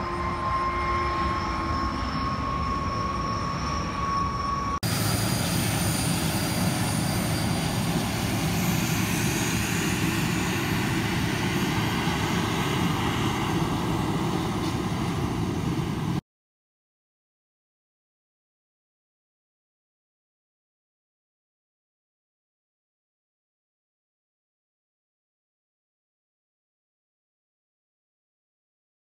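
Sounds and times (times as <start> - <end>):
jet engines whining: 0.0 - 16.2.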